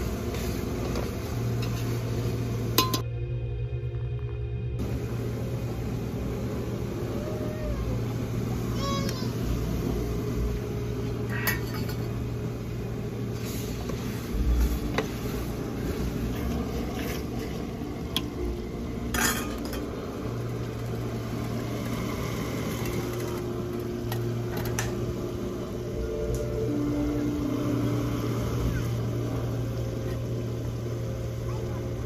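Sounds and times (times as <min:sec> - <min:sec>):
metal utensils clinking on pot: 0:02.8 - 0:03.0, 0:11.3 - 0:12.2, 0:19.1 - 0:19.9.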